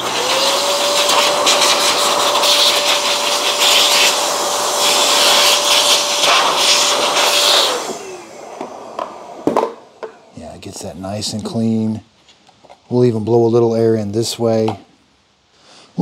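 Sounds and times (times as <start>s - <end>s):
electric air blower motor whine: 0.0s - 10.4s.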